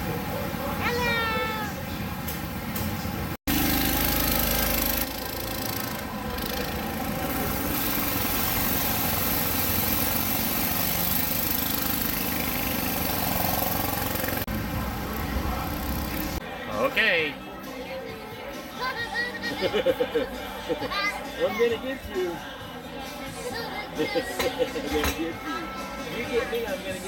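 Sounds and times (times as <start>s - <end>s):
go-kart engines running: 0.0s - 16.4s.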